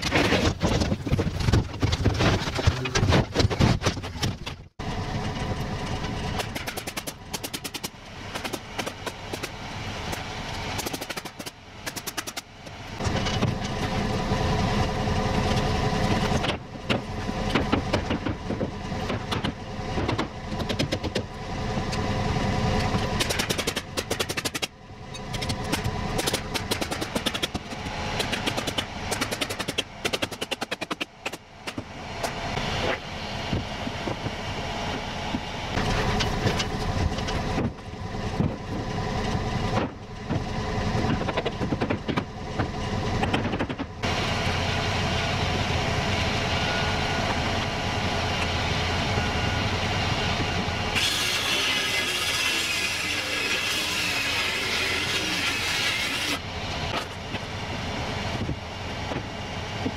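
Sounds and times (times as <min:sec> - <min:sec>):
engine running: 0:00.0 - 0:59.9
pneumatic nailer firing: 0:06.4 - 0:10.2, 0:10.8 - 0:12.5, 0:23.2 - 0:24.7, 0:25.4 - 0:31.8, 0:51.0 - 0:57.1.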